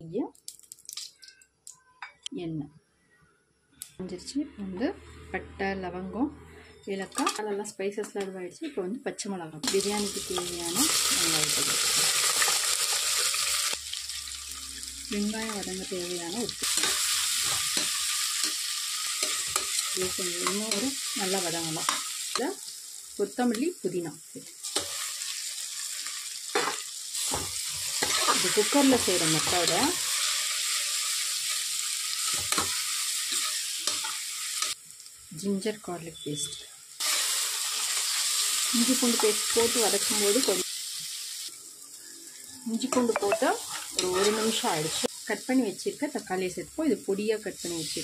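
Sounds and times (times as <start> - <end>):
onions sizzling in hot oil: 9.6 - 48.0
metal spoon scraping pot: 42.9 - 44.6.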